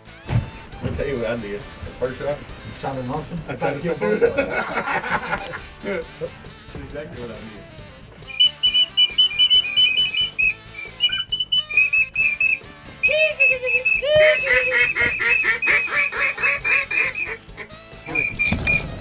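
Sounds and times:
duck quacking: 8.2s - 18.9s
high whistle-like notes: 8.2s - 18.9s.

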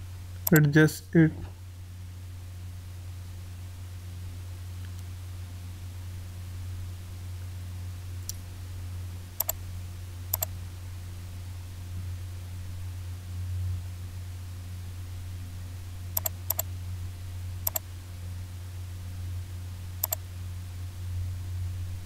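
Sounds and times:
steady low hum: 0.0s - 22.0s
mouse button clicks: 0.4s - 0.7s, 16.2s - 16.7s.

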